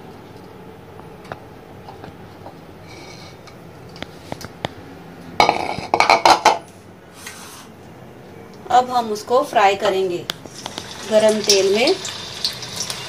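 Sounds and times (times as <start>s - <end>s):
dishes and utensils clattering: 5.4s - 6.7s.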